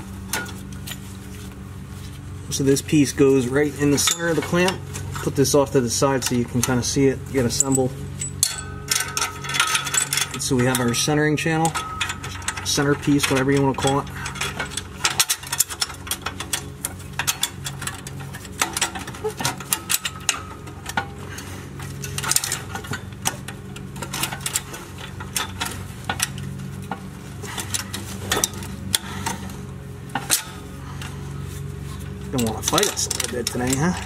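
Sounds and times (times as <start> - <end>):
steady low hum: 0.0 - 34.0
metal clamp clinking on pipe: 3.8 - 31.1, 32.2 - 34.0.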